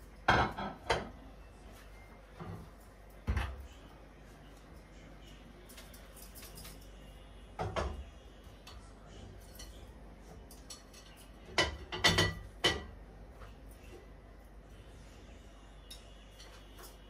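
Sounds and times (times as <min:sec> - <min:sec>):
pot and dishes clanking: 0:00.2 - 0:01.2, 0:09.4 - 0:13.0.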